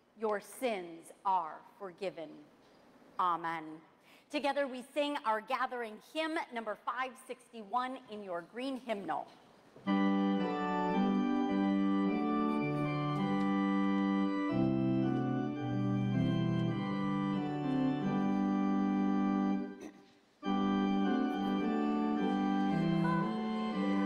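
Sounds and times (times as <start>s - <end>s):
church organ playing hymn chords: 9.8s - 24.0s.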